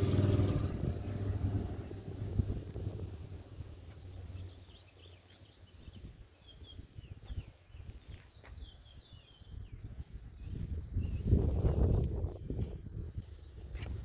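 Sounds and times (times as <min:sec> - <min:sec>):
low background rumble: 0:00.0 - 0:05.9
small birds chirping: 0:00.0 - 0:14.0.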